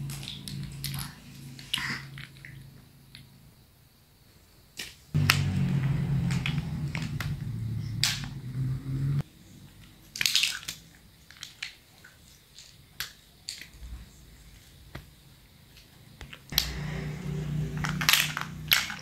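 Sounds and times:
loud steady low hum: 5.2 - 9.2, 16.5 - 19.0
plastic blocks clicking and clattering: 10.1 - 13.8, 17.8 - 19.0.

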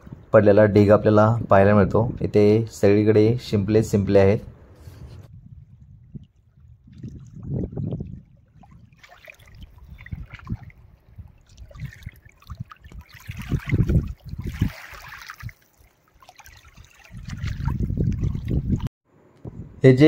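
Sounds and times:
low rumbling: 0.0 - 9.0
shallow water lapping: 4.8 - 18.9.

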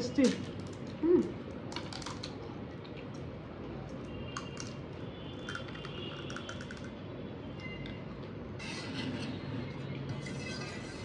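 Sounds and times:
fried shells cracking: 1.6 - 2.4.

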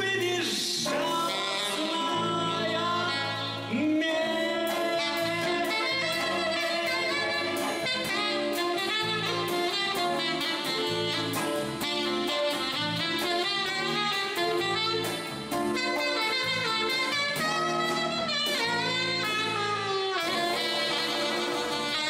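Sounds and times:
man singing: 0.0 - 7.8
acoustic guitar: 0.0 - 22.0
bass guitar: 0.0 - 22.0
drum kit: 0.0 - 22.0
saxophone: 0.0 - 22.0.

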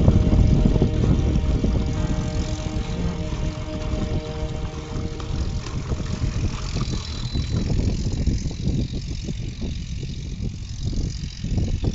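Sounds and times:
low rumble: 0.0 - 9.0.

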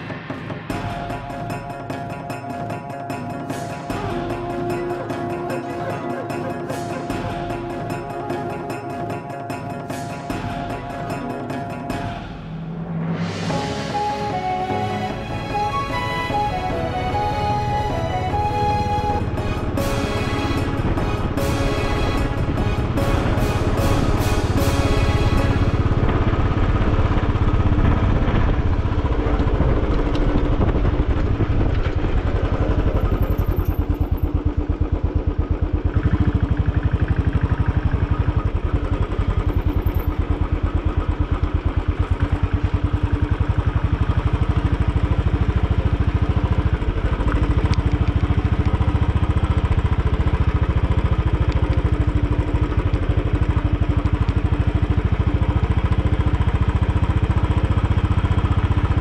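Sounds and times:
motorcycle engine running: 15.5 - 59.0.

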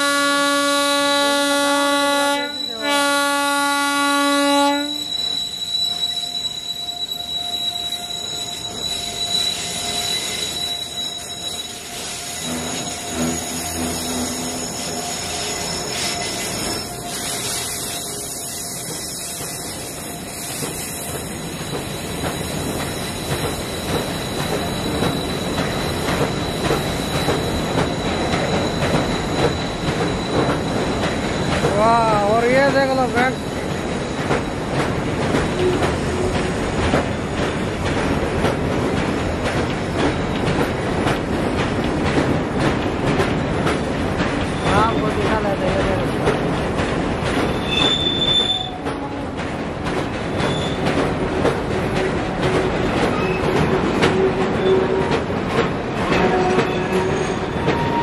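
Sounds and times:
locomotive horn: 0.0 - 5.1
freight train rumbling over bridge: 0.0 - 58.0
wheels squealing: 4.9 - 31.6, 47.4 - 49.1, 50.4 - 50.9.

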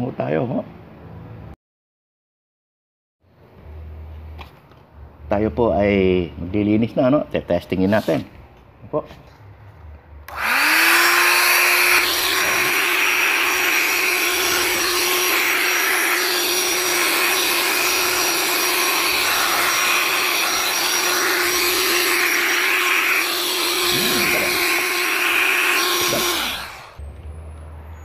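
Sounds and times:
electric air pump whirring: 10.3 - 27.0.

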